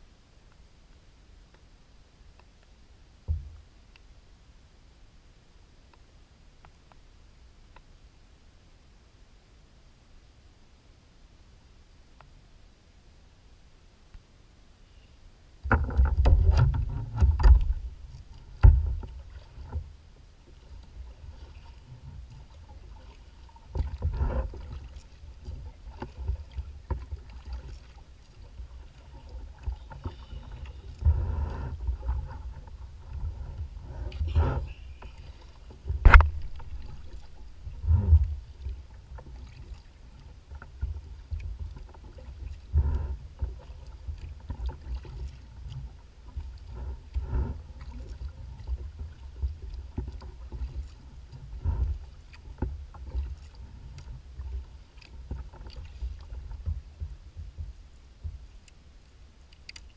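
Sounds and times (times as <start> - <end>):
sharp knocks on hull: 3.3 - 3.6, 18.6 - 19.1, 35.9 - 37.2
water lapping against kayak hull: 15.6 - 59.9.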